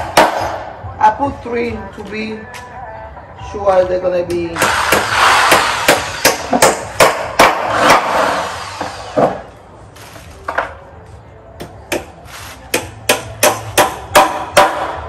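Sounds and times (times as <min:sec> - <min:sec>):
hammer striking nails into wood: 0:00.0 - 0:00.6, 0:04.6 - 0:08.2, 0:12.8 - 0:15.0.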